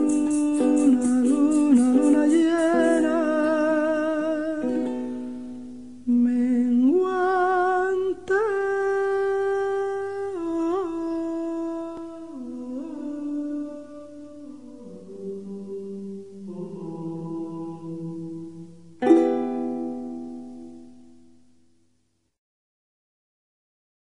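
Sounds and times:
man humming a slow melody: 0.0 - 5.1, 6.0 - 19.5.

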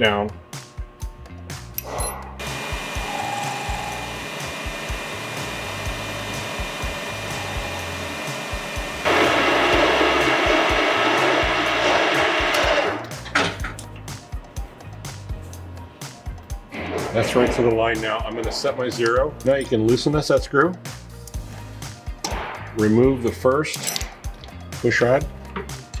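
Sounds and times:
metal lathe running: 1.8 - 13.2
lathe tool rough cutting: 2.4 - 13.0.

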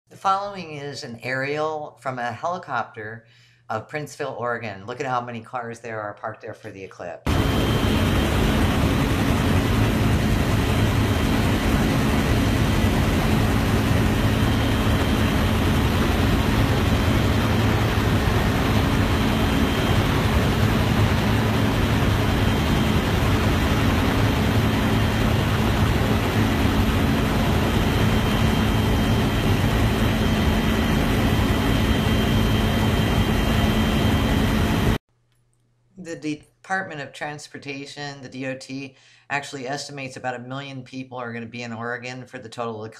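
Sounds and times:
helicopter engine and rotor drone: 7.3 - 35.0.

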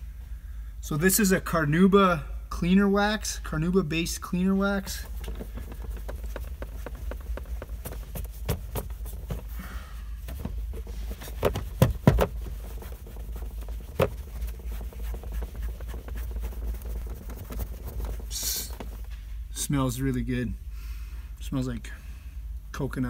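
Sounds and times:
steady low hum: 0.0 - 23.0
cloth rubbing on plastic: 4.8 - 19.1
sharp knocks: 11.3 - 12.4.

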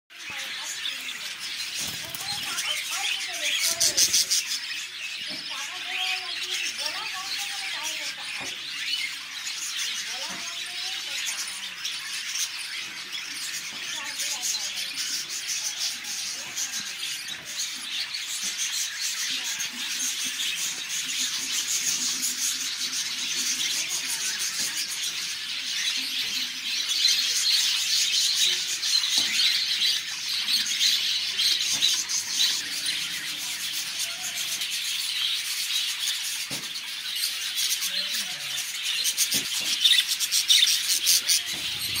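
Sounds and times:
budgerigars chirping and squeaking: 0.1 - 42.0.

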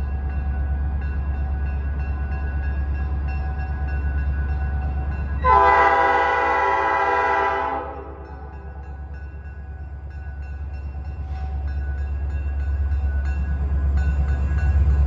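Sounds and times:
diesel locomotive engine rumbling: 0.0 - 15.0
train air horn: 5.4 - 8.4.

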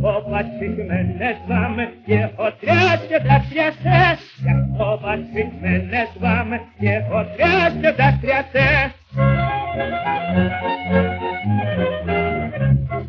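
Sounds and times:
tenor singing with vibrato: 0.0 - 10.8
orchestra accompaniment: 9.2 - 13.0.

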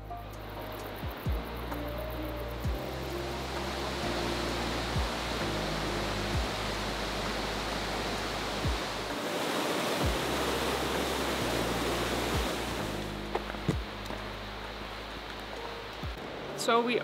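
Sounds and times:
background music with bass: 0.0 - 9.2, 10.0 - 16.2
river rushing: 0.0 - 17.0
deep drum beats: 1.0 - 3.8, 4.8 - 5.6, 6.2 - 7.8, 8.6 - 9.1, 10.0 - 10.4, 13.2 - 14.3.

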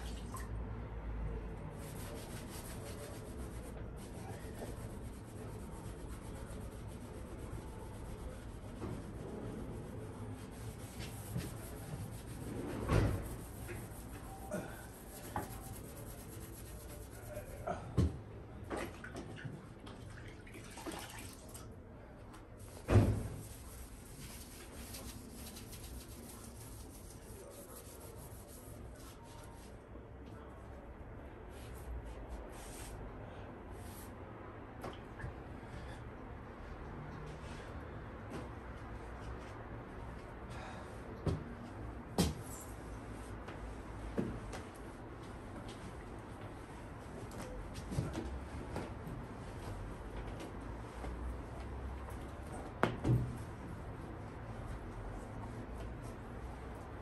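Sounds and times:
sponge wiping window frame: 1.7 - 17.8, 22.6 - 29.8.

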